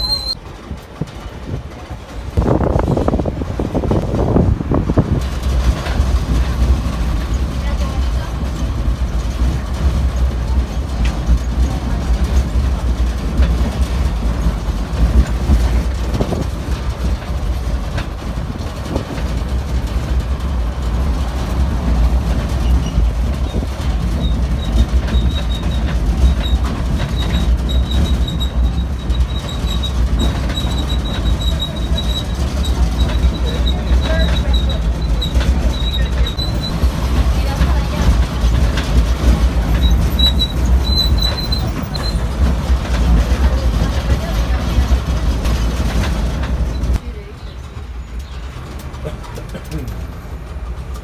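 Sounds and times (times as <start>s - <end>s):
thin high squeak: 0.0s - 0.4s, 24.6s - 36.8s, 39.7s - 42.3s
engine and wheels rumbling: 0.0s - 51.0s.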